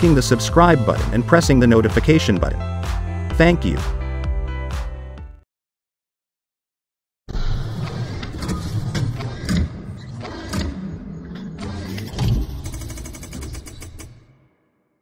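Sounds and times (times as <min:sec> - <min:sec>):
rapid rattle: 0:12.3 - 0:14.2.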